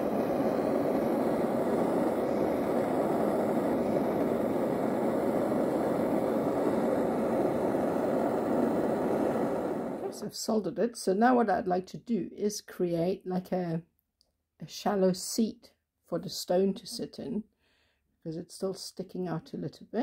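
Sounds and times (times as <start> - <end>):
gas torch flame rushing: 0.0 - 10.4.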